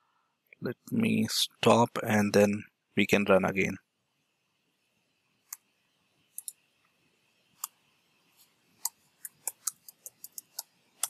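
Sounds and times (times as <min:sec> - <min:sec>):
computer keyboard keystrokes: 0:08.8 - 0:10.7.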